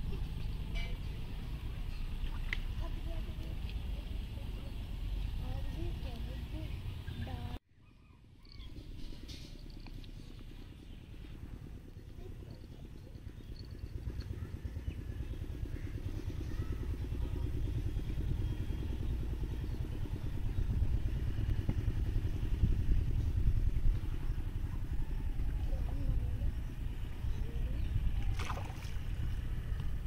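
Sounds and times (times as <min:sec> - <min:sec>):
motor engine running: 0:00.0 - 0:07.6, 0:08.6 - 0:30.0
fish splashing: 0:28.2 - 0:29.2.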